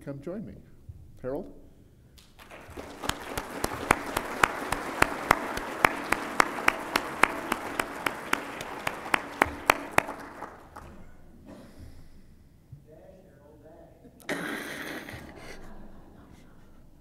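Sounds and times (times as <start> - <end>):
audience applauding: 2.2 - 11.2
sharp claps near microphone: 2.2 - 11.2.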